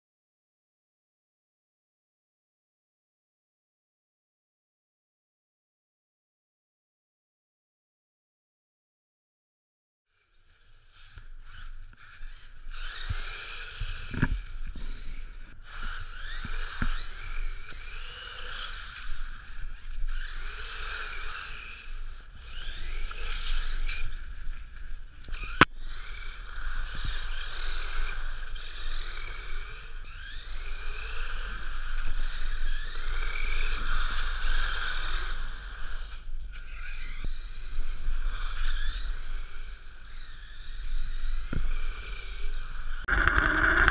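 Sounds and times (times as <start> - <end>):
electric motor whining: 11.0 - 24.4, 25.2 - 43.9
steady rushing noise: 43.0 - 43.9.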